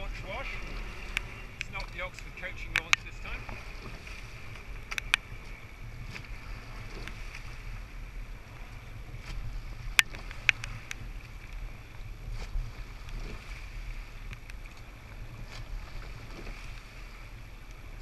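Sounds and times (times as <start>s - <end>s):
oars clicking in gates: 0.0s - 5.3s
water rushing along a hull: 0.0s - 18.0s
wind buffeting the microphone: 0.0s - 18.0s.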